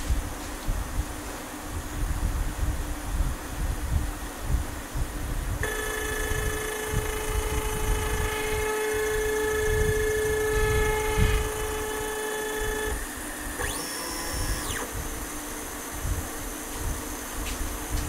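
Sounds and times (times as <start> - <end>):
stepper motor whining: 5.6 - 15.8.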